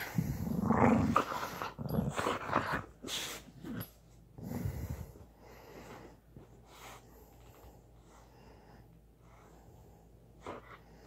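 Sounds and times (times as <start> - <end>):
dog grumbling: 0.0 - 2.9.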